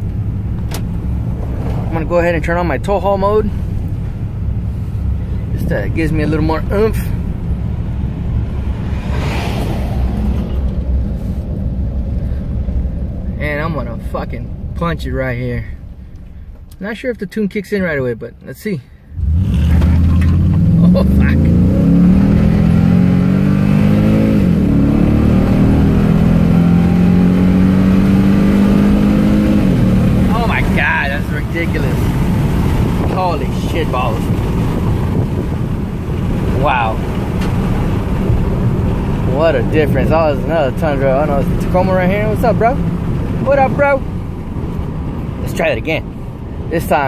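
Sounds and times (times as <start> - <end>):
engine and road noise: 0.0 - 47.0
rushing sound: 0.6 - 5.6, 6.6 - 13.4.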